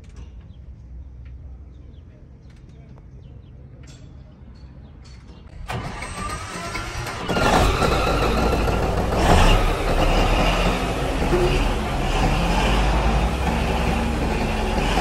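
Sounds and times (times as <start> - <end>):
starter cranking: 5.6 - 15.0
diesel engine running loudly: 5.7 - 15.0.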